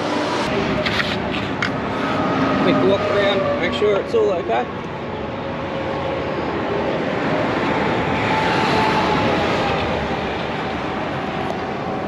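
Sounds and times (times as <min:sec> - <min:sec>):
faint whine falling in pitch: 0:00.0 - 0:00.8
heavy road vehicle noise: 0:00.0 - 0:12.0.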